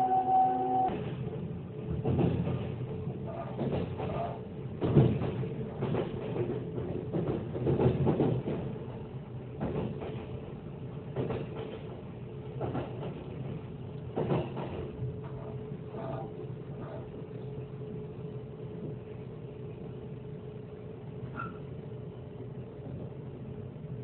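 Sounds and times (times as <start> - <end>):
faint steady hum: 0.0 - 1.0
train rumble from inside carriage: 0.0 - 24.0.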